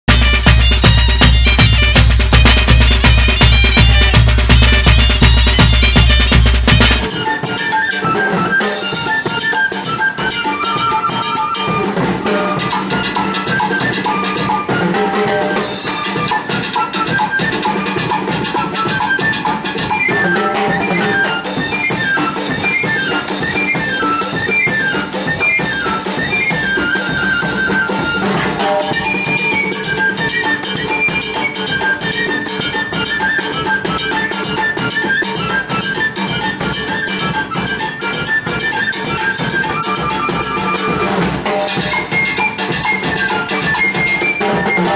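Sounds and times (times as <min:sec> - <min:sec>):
bass drum beating: 0:00.1 - 0:07.1
flute melody: 0:00.1 - 0:44.9.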